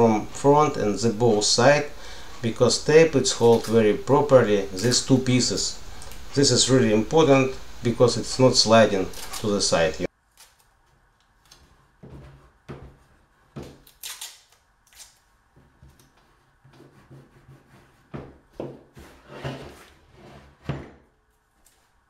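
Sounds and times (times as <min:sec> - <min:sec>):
tape rubbing rasping strokes: 0:15.8 - 0:18.4.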